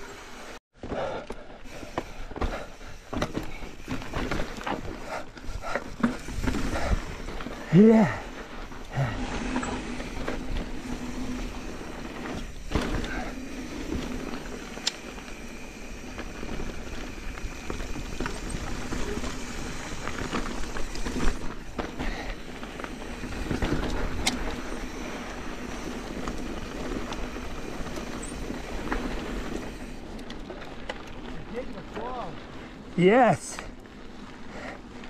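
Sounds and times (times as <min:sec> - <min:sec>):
bike clicks and rattles: 0:00.0 - 0:35.0
bike tyres rolling on dirt: 0:00.0 - 0:35.0.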